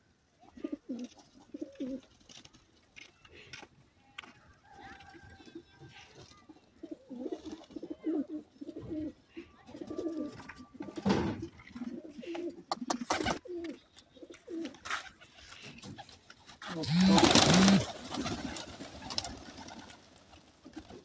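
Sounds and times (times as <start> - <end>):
pigeons cooing: 0.4 - 2.2, 5.7 - 21.0.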